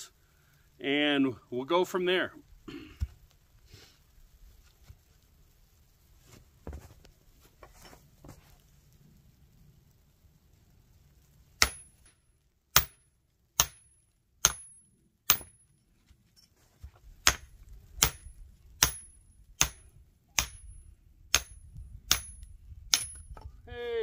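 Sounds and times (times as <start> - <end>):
log splitting strikes: 11.6 - 12.0, 13.6 - 15.6, 17.2 - 20.7.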